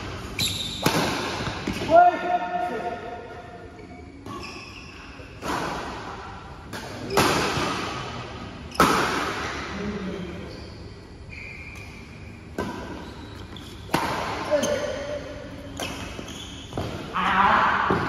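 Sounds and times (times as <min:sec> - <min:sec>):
badminton rackets hitting shuttlecock: 0:00.0 - 0:02.1, 0:05.3 - 0:09.7, 0:13.6 - 0:15.1.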